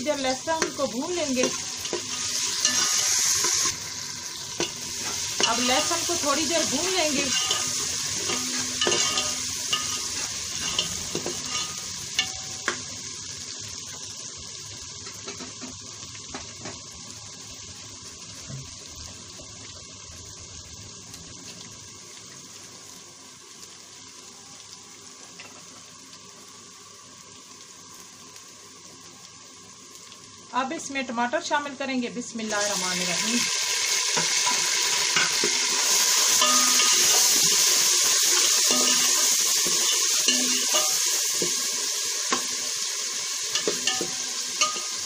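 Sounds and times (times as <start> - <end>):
onions sizzling in hot oil: 0.0 - 45.0
spoon scraping a metal pot: 1.4 - 3.8, 7.2 - 11.9.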